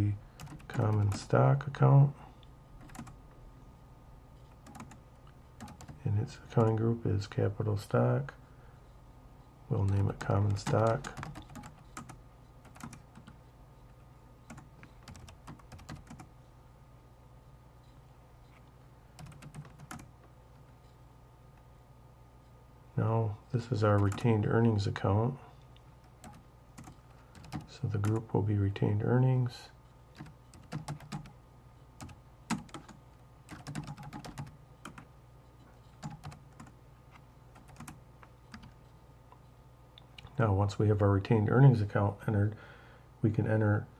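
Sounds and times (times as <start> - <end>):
low steady hum: 0.0 - 43.9
keyboard typing clicks: 0.4 - 1.2, 2.8 - 3.2, 4.6 - 5.0, 5.6 - 6.0, 9.8 - 13.4, 14.5 - 16.3, 19.2 - 20.1, 26.1 - 28.2, 30.2 - 31.3, 32.0 - 35.1, 36.0 - 36.8, 37.6 - 38.8.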